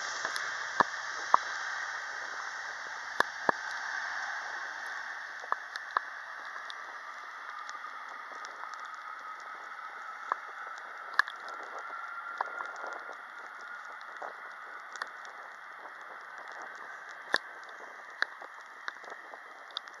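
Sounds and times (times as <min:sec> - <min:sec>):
sharp clicks: 0:10.2 - 0:20.0.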